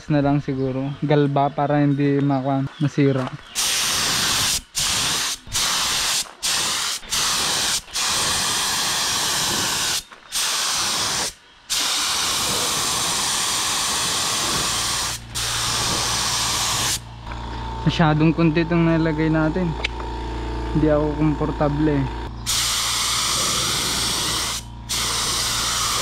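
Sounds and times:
spray gun hissing: 3.6s - 17.0s, 22.5s - 26.0s.

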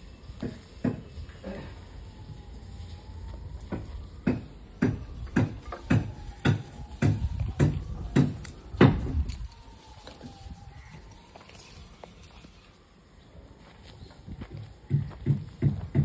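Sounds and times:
heavy footsteps: 13.6s - 16.0s.

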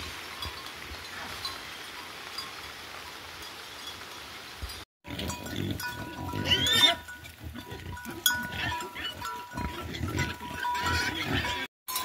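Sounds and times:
pigs grunting: 5.0s - 11.7s
pig squealing: 6.1s - 11.7s.

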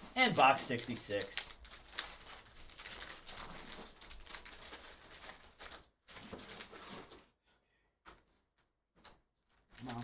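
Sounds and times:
plastic wrapper crinkling: 0.2s - 7.2s.

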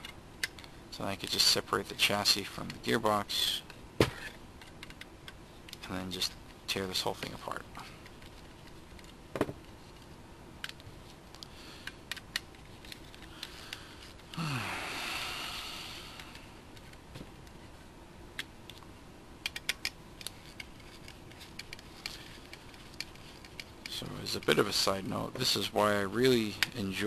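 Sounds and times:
loud hiss: 14.4s - 16.2s.

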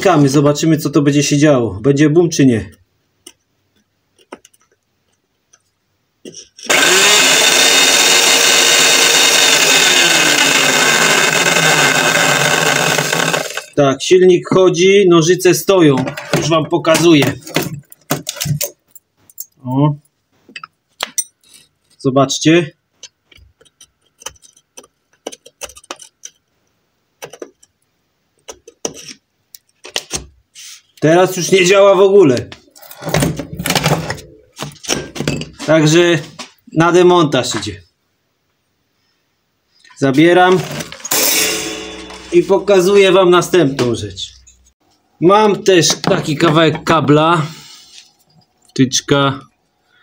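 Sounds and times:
hedge trimmer motor running: 6.7s - 13.8s, 40.5s - 42.4s.

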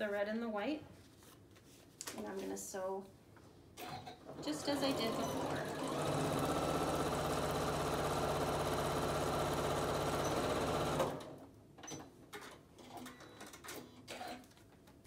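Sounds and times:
electric sewing machine running: 4.4s - 11.4s.

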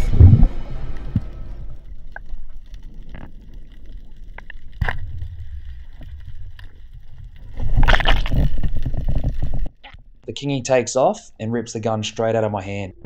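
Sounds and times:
underwater low rumble: 0.0s - 10.2s
small underwater clicks: 1.0s - 10.0s.

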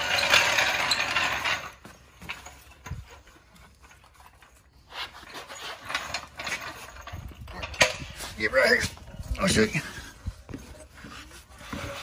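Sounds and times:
floor jack ratcheting rattle: 0.0s - 3.3s.

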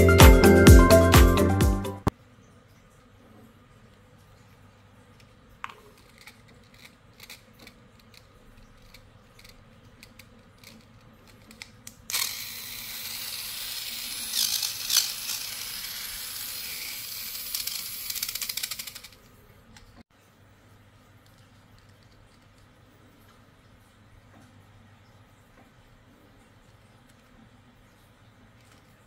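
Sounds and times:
plastic parts clicking: 5.6s - 20.0s
small motor whirring through gears: 6.0s - 19.2s.

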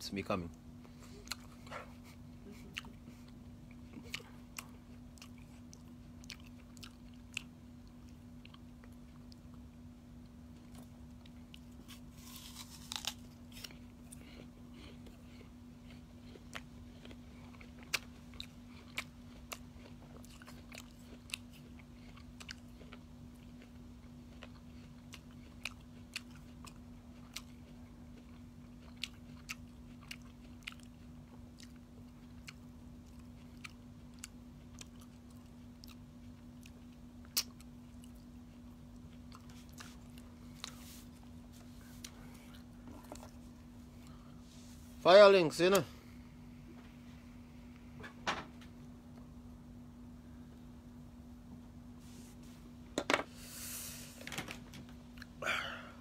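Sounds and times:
steady low hum: 0.0s - 56.0s
person chewing: 1.1s - 44.4s.

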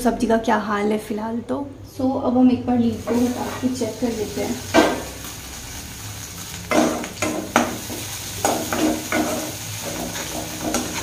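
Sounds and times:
frying mixture sizzling: 2.7s - 11.0s
metal spatula scraping a pan: 6.7s - 11.0s.

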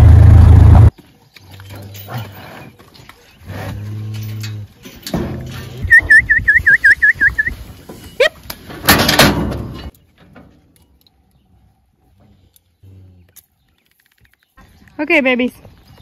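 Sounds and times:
cattle knocking in steel chute: 8.7s - 10.5s.

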